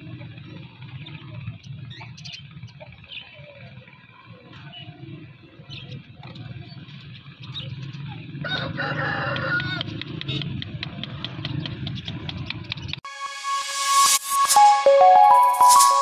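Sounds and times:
rooster crowing: 8.4 - 9.8.

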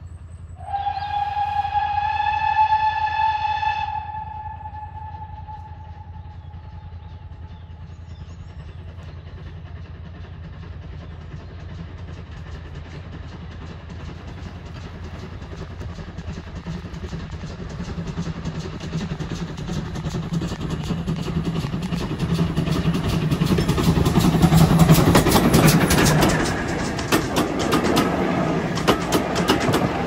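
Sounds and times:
steam locomotive chuffing: 0.0 - 30.0
steam whistle: 0.6 - 6.8.

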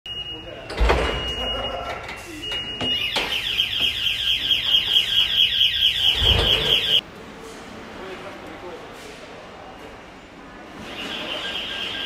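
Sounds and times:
high-pitched electronic alarm pulsing: 2.8 - 7.0.

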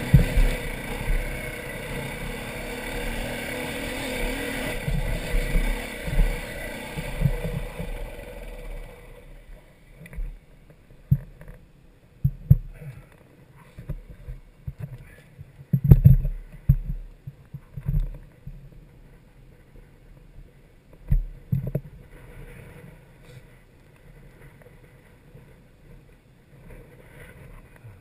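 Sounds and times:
low rumble: 0.0 - 10.5.

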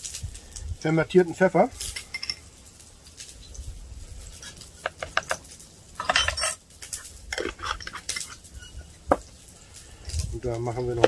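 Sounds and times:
utensils clinking on pot and jars: 1.8 - 2.5, 4.8 - 9.2.

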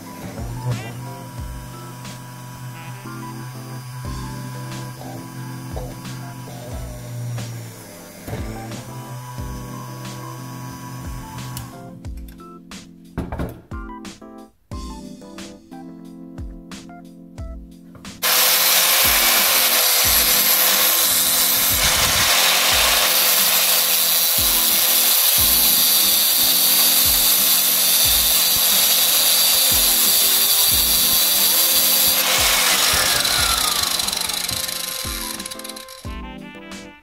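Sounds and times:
power tool grinding metal: 0.0 - 11.9, 18.2 - 36.2.

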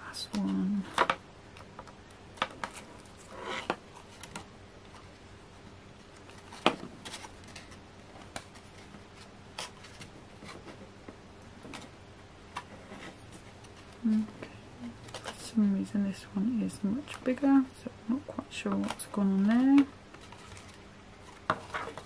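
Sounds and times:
paper rustling: 6.2 - 10.8, 18.8 - 22.0.

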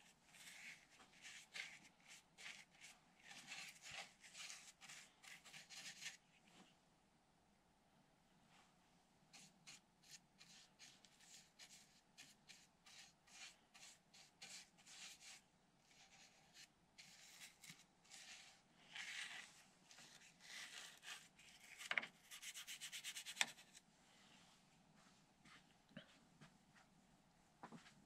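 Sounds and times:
paintbrush strokes on wood: 0.0 - 6.2, 9.4 - 23.6.

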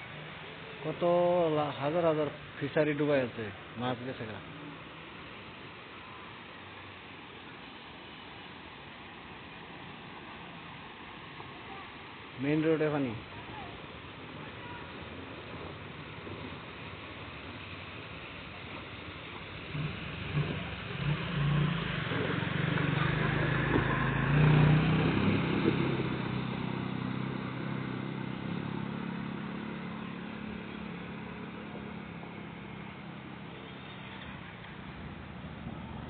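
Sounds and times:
vehicle engine passing by: 19.6 - 36.0.

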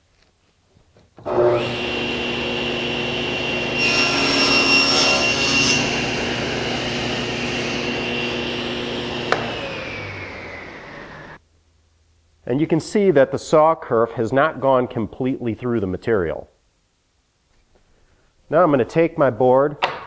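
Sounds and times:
saw blade cutting wood: 1.2 - 11.4
table saw whine: 1.2 - 11.4.

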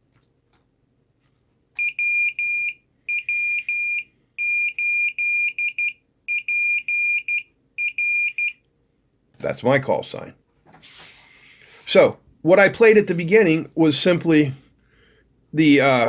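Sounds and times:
buzzer beeping morse code: 1.8 - 8.6.

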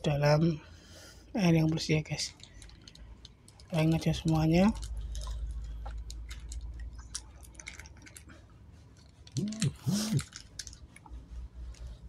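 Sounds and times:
plastic sachet crackling: 2.1 - 8.3, 9.0 - 11.8.

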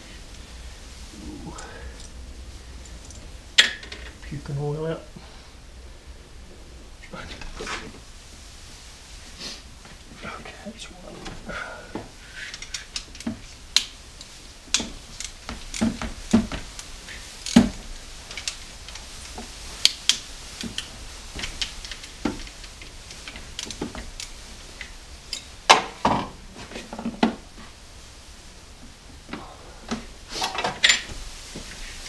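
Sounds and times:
tools and engine parts clinking: 25.3 - 26.2, 30.4 - 31.2.

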